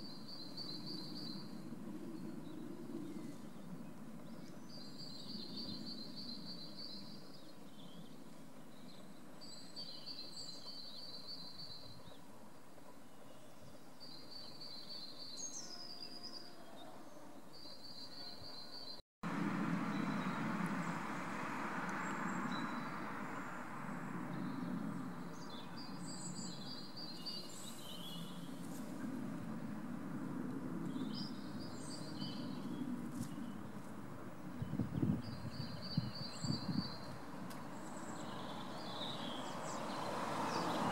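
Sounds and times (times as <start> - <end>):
small birds singing trills: 0.0 - 19.0, 21.9 - 28.8, 30.8 - 40.9
steady rushing noise: 19.2 - 25.8.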